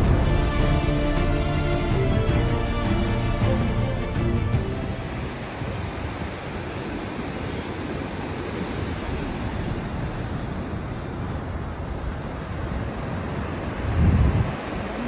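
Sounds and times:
ocean surf breaking on beach: 4.6 - 15.0
wind on microphone: 4.8 - 15.0.

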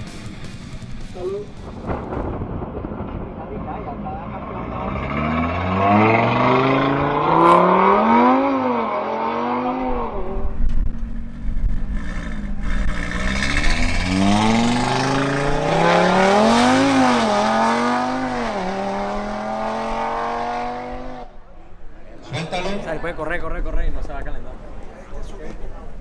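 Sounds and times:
car engine accelerating with upshifts: 4.5 - 21.4.

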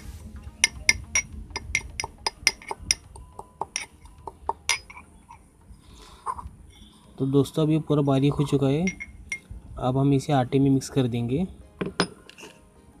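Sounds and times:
metal pestle pounding in mortar: 0.6 - 3.9.

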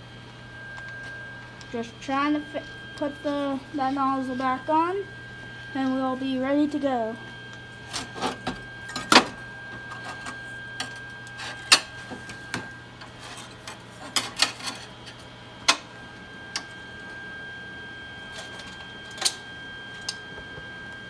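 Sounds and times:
low hum: 0.0 - 13.8
high electrical whine: 0.0 - 21.0.

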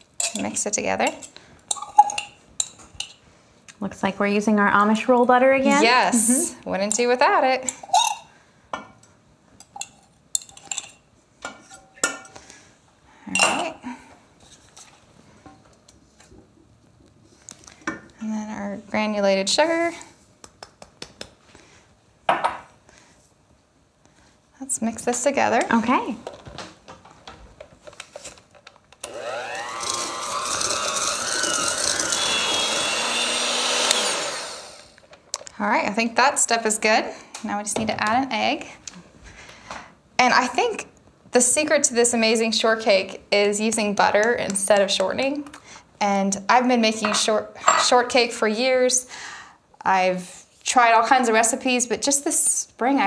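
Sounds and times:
metal spoon clinking on bowl: 0.2 - 0.5, 1.2 - 3.1
electric hand mixer whining: 29.0 - 35.0.

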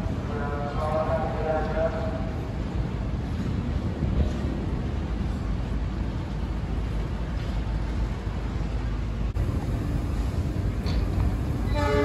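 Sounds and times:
wind buffeting microphone: 2.2 - 12.0
train horn: 11.6 - 12.0.

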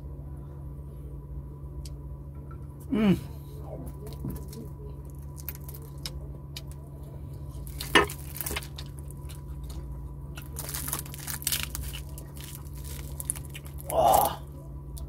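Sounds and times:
fried fish skin crackling: 3.9 - 14.5
mouth eating sounds: 13.2 - 14.6.

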